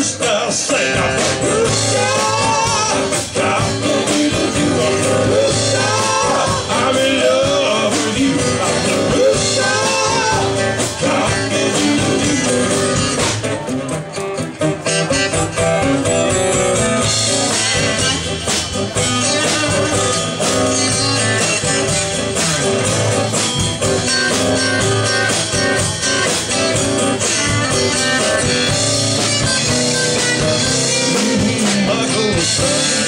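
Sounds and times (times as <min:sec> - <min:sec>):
voices singing: 0:00.0 - 0:13.4, 0:30.1 - 0:33.0
bass guitar: 0:00.0 - 0:33.0
strummed acoustic guitars: 0:00.0 - 0:33.0.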